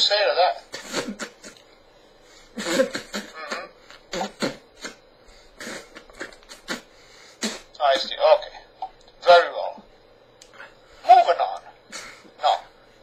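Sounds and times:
man mumbling: 0:12.4 - 0:12.7.

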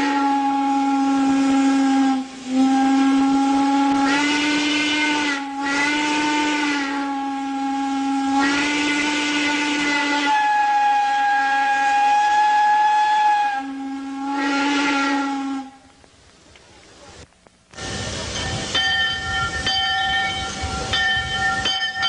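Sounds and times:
steam whistle blowing: 0:00.0 - 0:15.8
steam hissing: 0:00.0 - 0:22.0.

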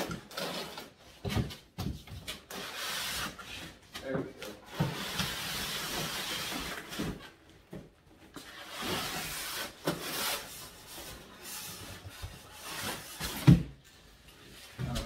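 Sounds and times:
cardboard and foam scraping: 0:04.6 - 0:07.4, 0:08.3 - 0:13.8.

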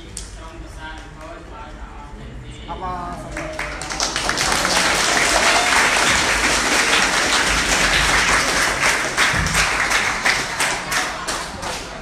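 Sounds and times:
crowd applauding: 0:03.3 - 0:12.0.

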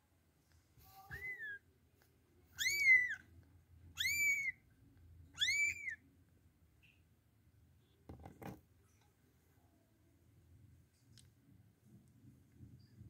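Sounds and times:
kitten mewing: 0:02.6 - 0:03.2, 0:04.0 - 0:04.5, 0:05.4 - 0:06.0.

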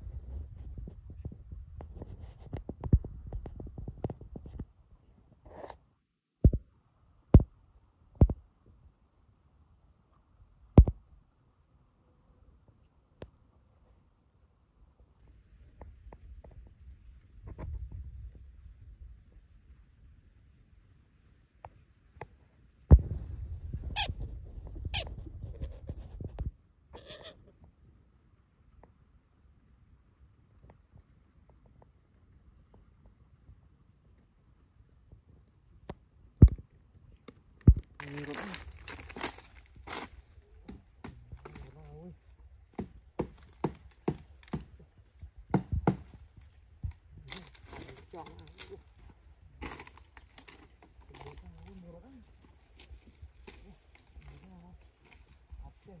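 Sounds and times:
low rumble with knocks: 0:22.9 - 0:25.6.

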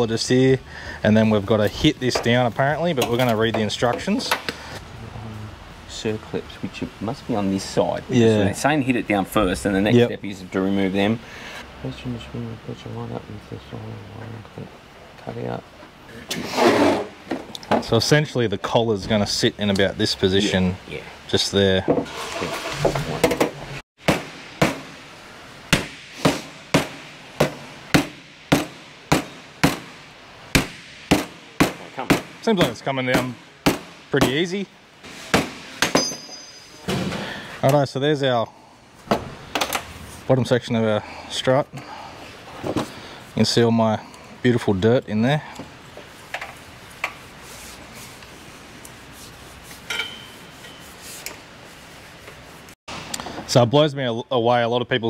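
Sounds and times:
mallet striking metal: 0:25.7 - 0:30.0.

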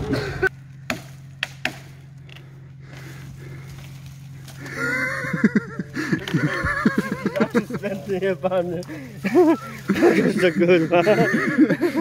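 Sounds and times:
man laughing loudly: 0:00.0 - 0:00.5, 0:04.6 - 0:12.0
steady low hum: 0:00.0 - 0:12.0
branches cracking and rustling: 0:00.5 - 0:11.1.

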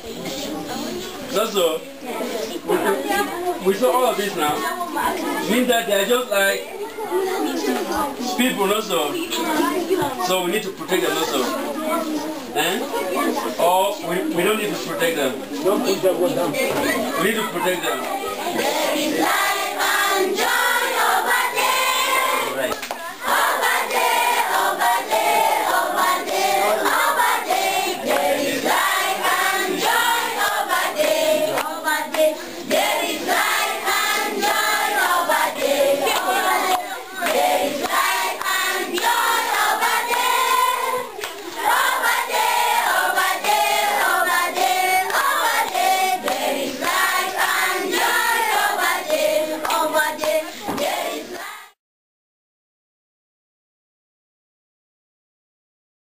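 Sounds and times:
children singing together: 0:17.8 - 0:51.8
hand clapping: 0:22.6 - 0:23.0, 0:26.2 - 0:28.8, 0:30.4 - 0:32.9, 0:34.4 - 0:40.4, 0:44.5 - 0:51.5.

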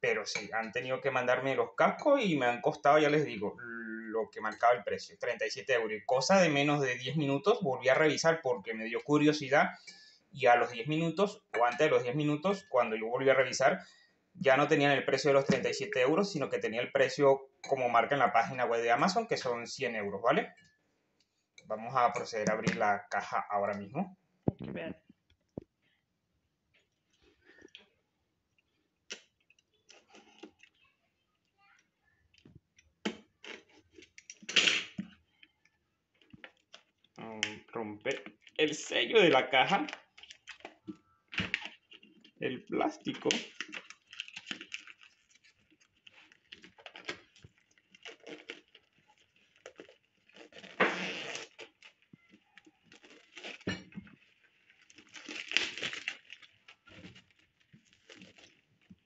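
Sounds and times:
plastic wrap crinkling and tearing: 0:39.3 - 0:42.4, 0:43.0 - 0:59.0.

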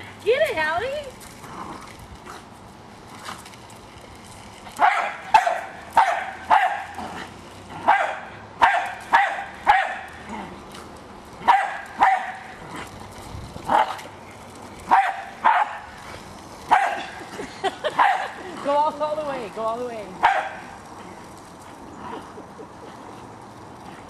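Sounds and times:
dog barking: 0:04.8 - 0:06.9, 0:07.8 - 0:10.1, 0:11.4 - 0:12.4, 0:14.9 - 0:15.8, 0:16.7 - 0:17.0, 0:20.2 - 0:20.6.

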